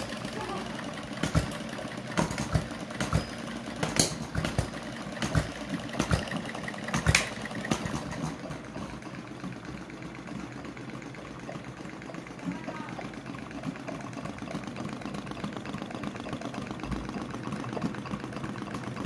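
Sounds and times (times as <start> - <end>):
low mechanical running sound: 0.0 - 19.0
engine firing pops: 1.2 - 8.5.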